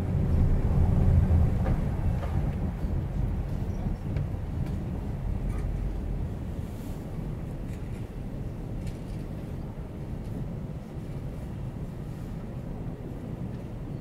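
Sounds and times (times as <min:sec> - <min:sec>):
car road noise: 0:00.0 - 0:07.7
bus engine rumble: 0:00.0 - 0:14.0.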